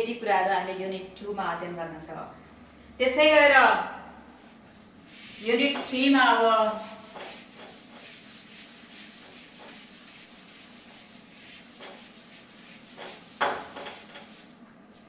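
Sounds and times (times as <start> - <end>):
duster wiping whiteboard: 4.4 - 15.0.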